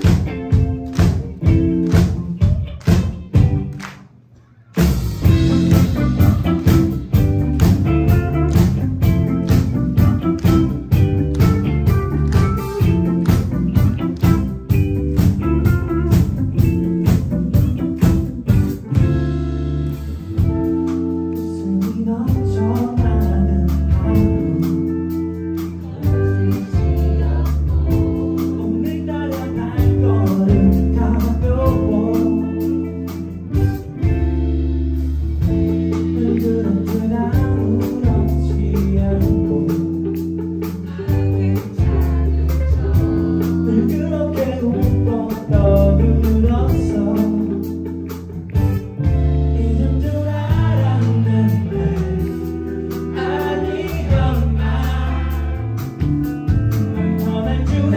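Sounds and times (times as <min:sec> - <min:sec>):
bass notes: 0:00.0 - 0:57.9
drums: 0:00.0 - 0:57.9
electric guitar: 0:00.0 - 0:57.9
person singing: 0:20.4 - 0:33.7, 0:35.8 - 0:48.2, 0:49.0 - 0:56.0, 0:56.9 - 0:57.9.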